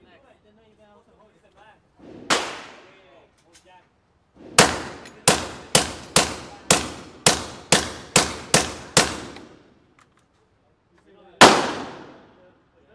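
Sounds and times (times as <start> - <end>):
rifle shots echoing indoors: 11.4 - 12.3.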